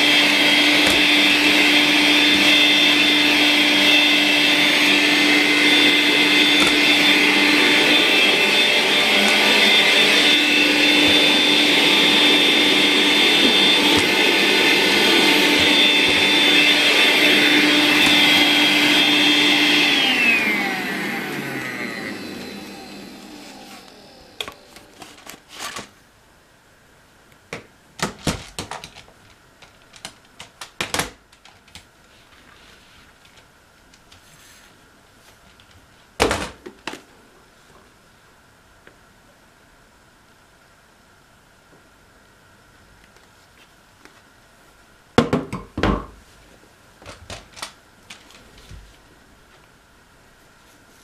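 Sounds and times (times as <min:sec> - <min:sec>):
plastic parts clicking and knocking: 0:27.5 - 0:31.9.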